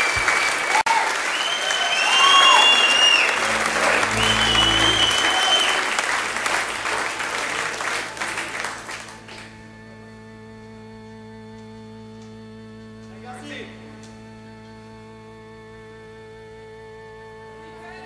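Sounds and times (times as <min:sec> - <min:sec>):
audience applauding and cheering: 0:00.0 - 0:09.5
shrill whistles: 0:01.2 - 0:06.0
held instrument note: 0:03.3 - 0:09.2.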